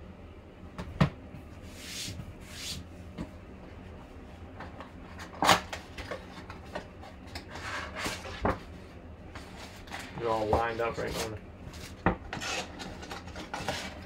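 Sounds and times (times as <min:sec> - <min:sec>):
crackly rustling of contents: 0:04.6 - 0:14.0.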